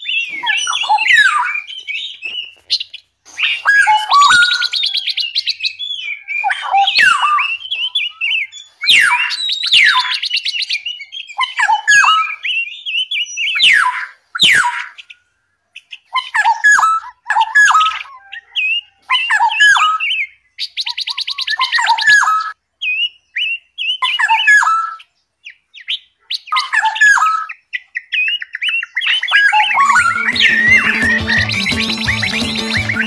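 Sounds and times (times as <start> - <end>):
fast bird trill: 0.0 - 15.2, 25.8 - 33.0
songbirds chirping: 0.0 - 33.0.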